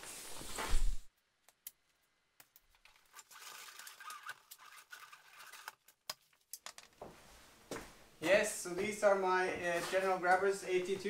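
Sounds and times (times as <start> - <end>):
light scratching: 3.1 - 5.9.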